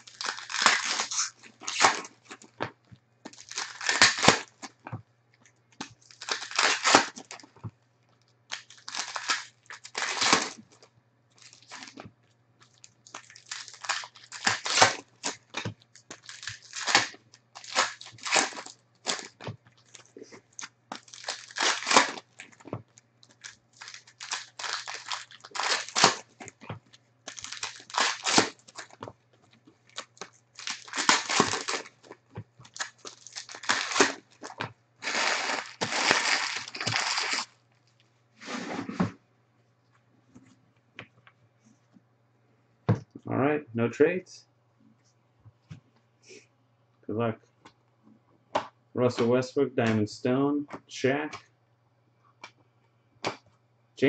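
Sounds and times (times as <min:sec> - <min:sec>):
plastic wrappers tearing: 0:00.0 - 0:02.6, 0:03.3 - 0:04.8, 0:05.8 - 0:07.5, 0:08.5 - 0:12.0, 0:12.6 - 0:29.1, 0:29.8 - 0:38.0.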